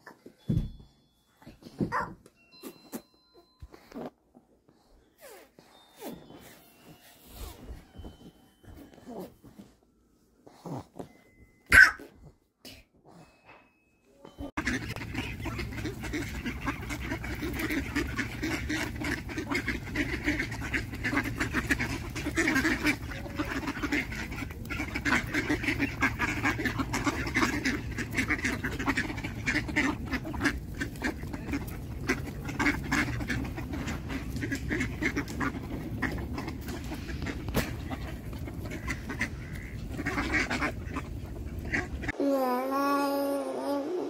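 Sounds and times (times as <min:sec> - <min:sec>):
ducks quacking: 0:14.5 - 0:42.2.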